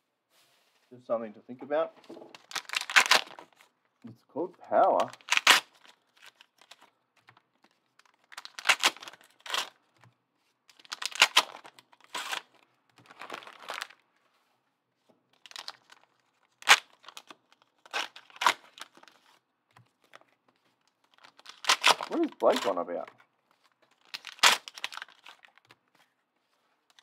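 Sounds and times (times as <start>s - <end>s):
foil wrappers tearing and crinkling: 2.4s - 3.7s, 4.8s - 6.9s, 8.0s - 9.8s, 10.7s - 14.0s, 15.4s - 19.4s, 20.0s - 25.7s.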